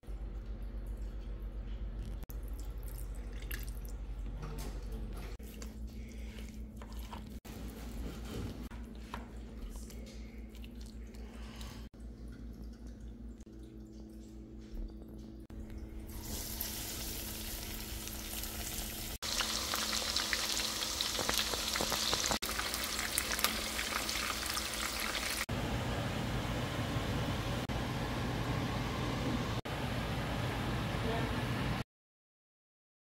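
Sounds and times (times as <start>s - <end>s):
chicken sizzling in hot oil: 16.1s - 25.5s.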